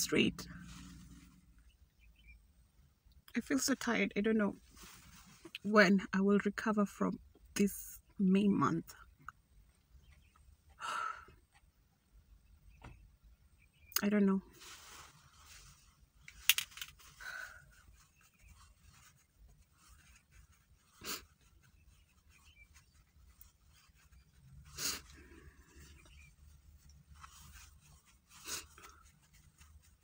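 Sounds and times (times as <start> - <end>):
paper tissue rustling: 4.5 - 5.6, 14.5 - 16.3, 16.9 - 30.0.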